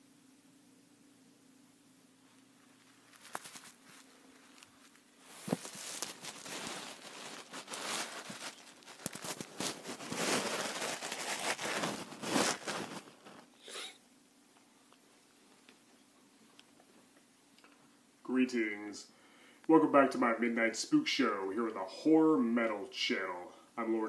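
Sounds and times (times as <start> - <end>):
camera handling rustling: 3.1 - 10.5.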